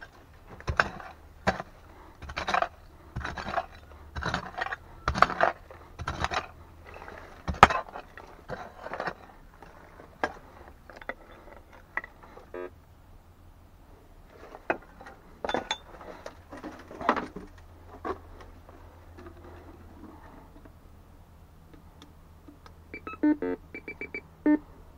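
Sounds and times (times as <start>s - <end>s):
hand tool scraping stones: 0.0s - 12.4s
metal detector beeps: 22.9s - 24.6s.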